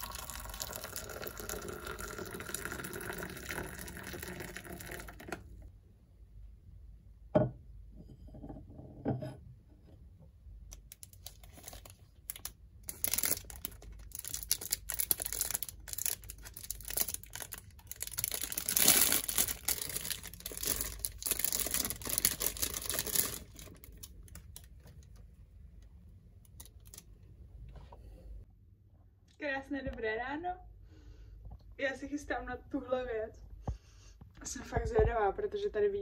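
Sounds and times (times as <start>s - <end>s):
crinkling and rustling: 10.7s - 28.0s.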